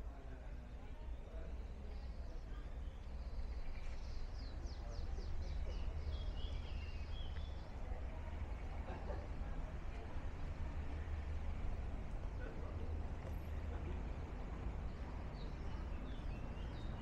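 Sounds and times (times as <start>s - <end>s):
small songbirds singing: 0.7s - 8.8s, 14.1s - 17.0s.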